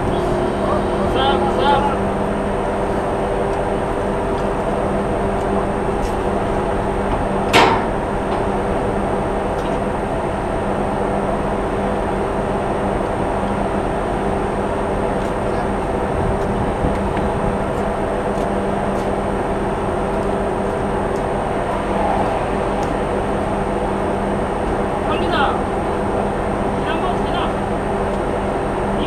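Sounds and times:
ship machinery humming: 0.0s - 29.0s
wind or sea noise: 0.0s - 29.0s
sharp metallic clank: 7.5s - 8.1s.

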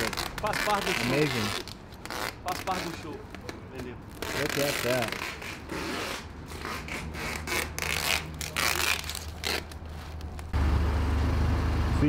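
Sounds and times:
wrapping material rustling: 0.0s - 10.6s
forklift engine humming: 10.2s - 12.0s.

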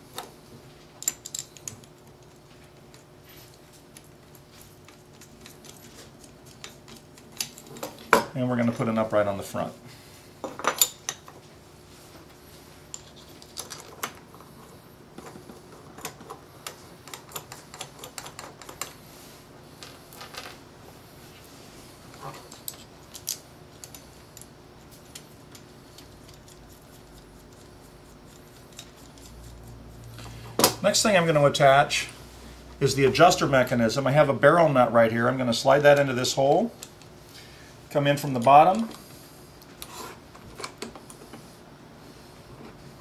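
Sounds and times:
small metal parts clicking: 1.0s - 3.0s, 22.5s - 26.7s.

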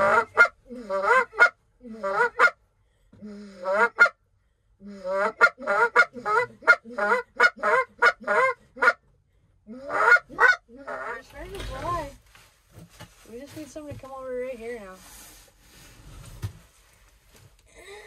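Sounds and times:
goose call clucks: 0.0s - 2.6s, 3.5s - 4.2s, 4.9s - 9.1s, 9.7s - 11.3s
goose call honks: 0.0s - 2.6s, 3.6s - 4.2s, 5.0s - 9.0s, 9.7s - 11.3s.

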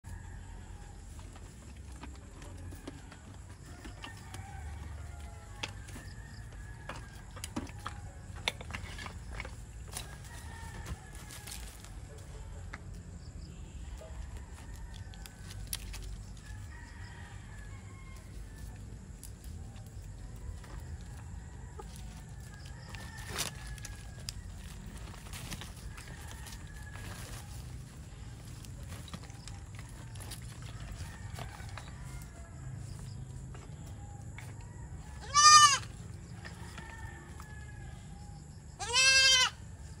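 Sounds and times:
rooster crowing: 2.6s - 8.3s, 9.9s - 12.0s, 13.8s - 19.0s, 19.7s - 39.6s
goat bleating: 35.2s - 36.0s, 38.8s - 39.6s.

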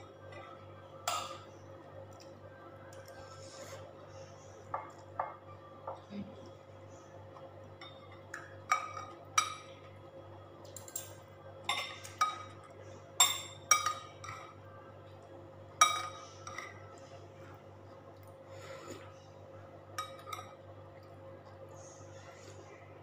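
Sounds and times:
spoon clinking against ceramic bowl: 13.2s - 14.6s.

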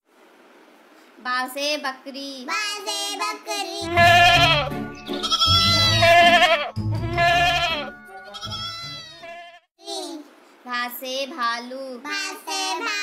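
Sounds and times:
goats bleating: 3.8s - 9.7s.

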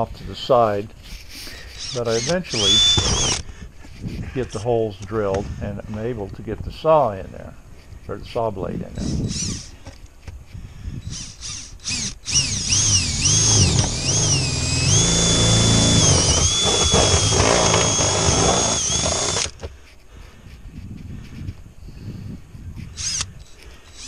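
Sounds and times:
power drill whining: 1.5s - 3.4s, 9.0s - 9.8s, 11.0s - 19.6s, 22.8s - 24.0s.

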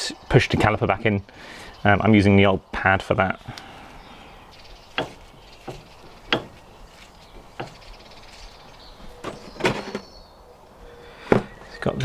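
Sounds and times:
brake parts clicking and knocking: 4.9s - 6.8s.

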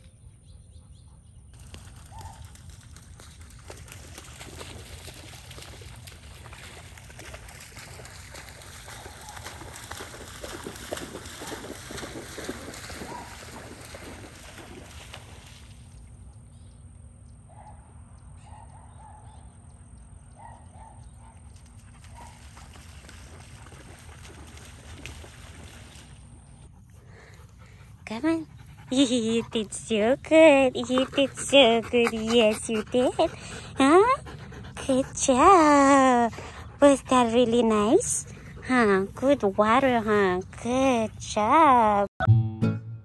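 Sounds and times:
dog splashing through water: 1.6s - 16.0s, 21.6s - 26.4s.

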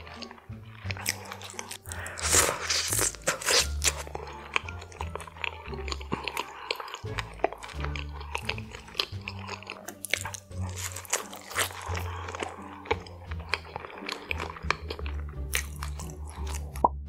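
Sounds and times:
biting and chewing food: 0.0s - 17.0s
wet mouth clicks: 0.0s - 17.0s
background music with bass line: 14.4s - 17.0s.

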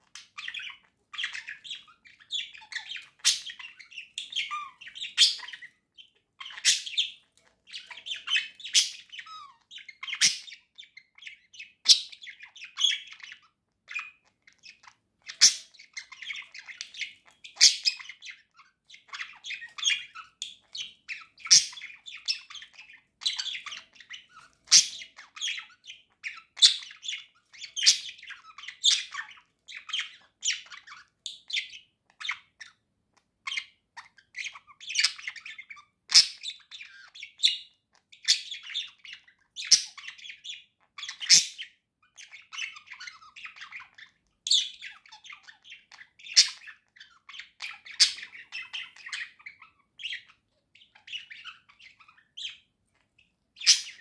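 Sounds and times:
budgerigar chattering: 0.1s - 10.7s.

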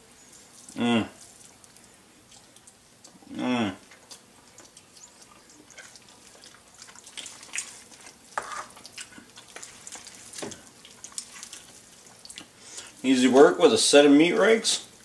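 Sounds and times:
meat tearing and scraping: 3.9s - 13.0s.

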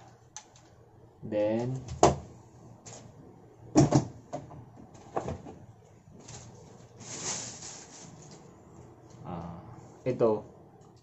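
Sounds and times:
plastic bags rustling: 6.1s - 8.5s.

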